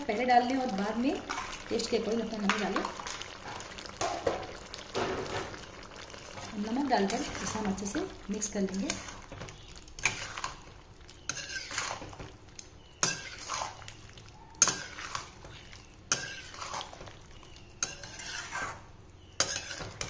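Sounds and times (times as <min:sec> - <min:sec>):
spatula scraping metal pan: 0:11.2 - 0:12.2, 0:13.0 - 0:13.8, 0:16.1 - 0:17.0, 0:17.8 - 0:20.0.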